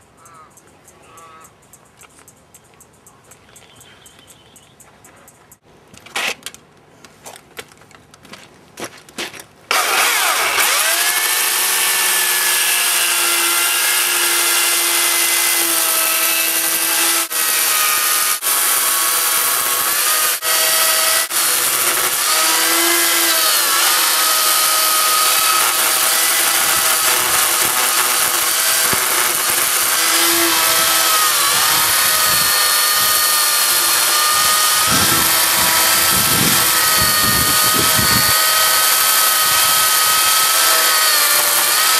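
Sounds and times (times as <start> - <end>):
chainsaw cutting log: 9.7 - 41.9.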